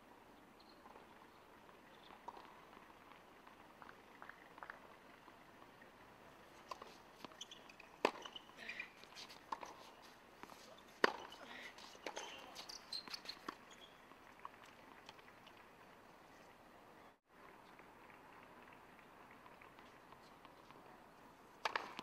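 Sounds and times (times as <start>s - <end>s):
tennis ball striking hard court: 6.6s - 8.4s, 11.0s - 11.4s, 21.6s - 22.0s.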